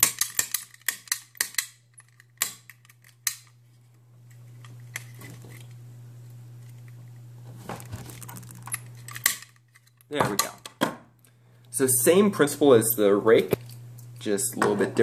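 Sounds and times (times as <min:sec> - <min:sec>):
snap gun metallic snaps: 0:00.0 - 0:01.8, 0:02.4 - 0:03.6.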